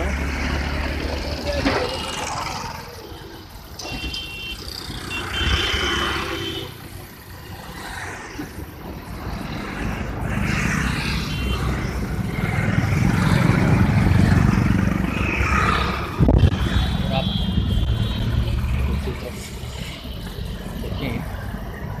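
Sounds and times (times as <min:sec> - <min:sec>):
road traffic passing: 0:00.0 - 0:22.0.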